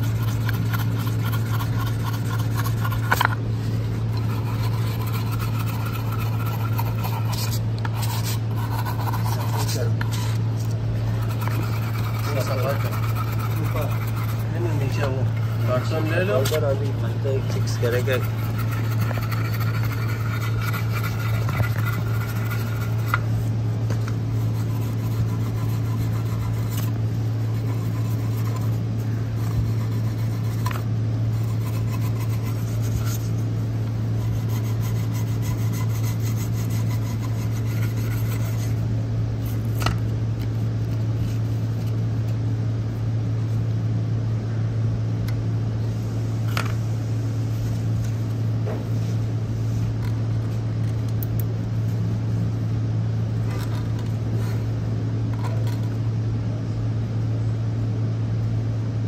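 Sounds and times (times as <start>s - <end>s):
low hum: 0.0s - 59.0s.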